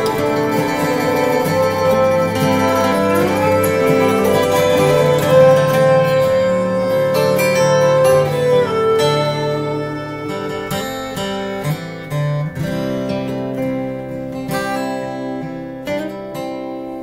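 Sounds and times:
slow instrumental soundtrack music: 0.0 - 17.0.

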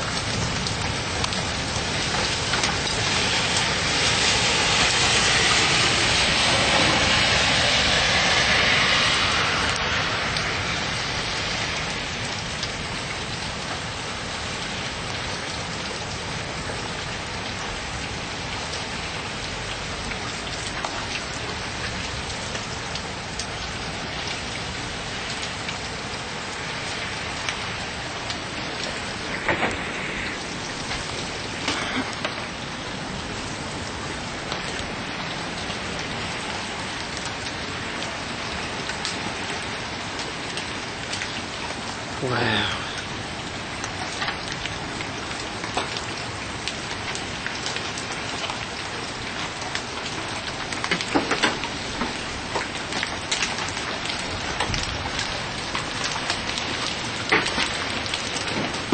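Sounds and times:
hailstones clicking: 0.0 - 3.8, 27.4 - 32.6, 43.8 - 58.9
rain and hail on wooden deck: 0.0 - 58.9.

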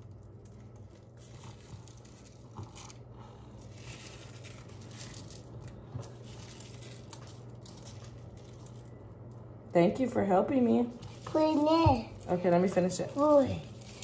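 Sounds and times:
sprinkles rustling and rattling: 0.0 - 14.0
steady low hum: 0.0 - 14.0.

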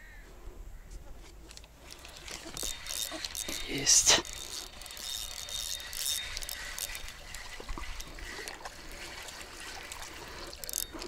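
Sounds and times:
water trickling and splashing: 1.8 - 11.0.

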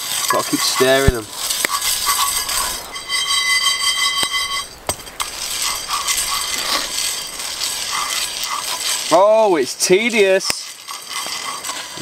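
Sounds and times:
coffee beans rattling in skillet: 0.0 - 12.0
high ringing tone: 1.8 - 8.2.

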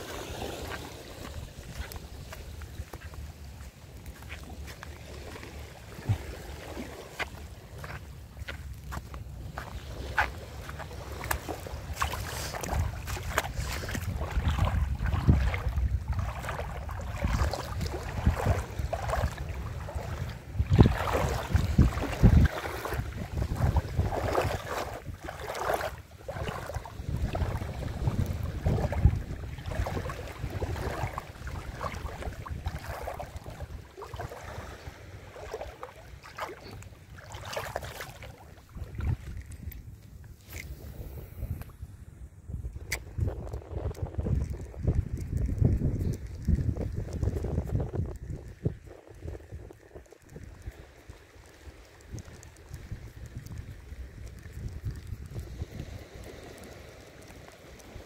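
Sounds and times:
small waves lapping over rock: 0.0 - 41.8, 42.9 - 58.0
wind rumbling on microphone: 0.0 - 58.0.

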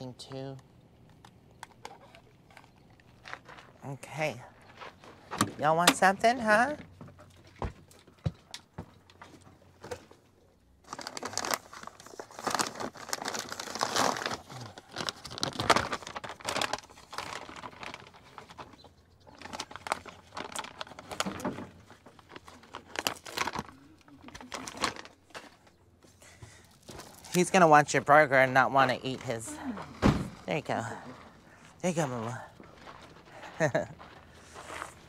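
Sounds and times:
paper wrapping crinkling: 10.8 - 25.6.

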